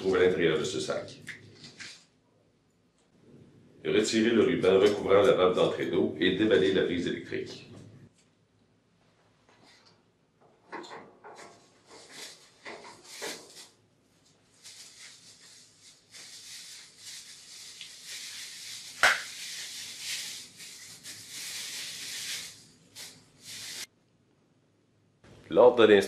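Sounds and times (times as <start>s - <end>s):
plastic bag crinkling: 14.5s - 23.9s.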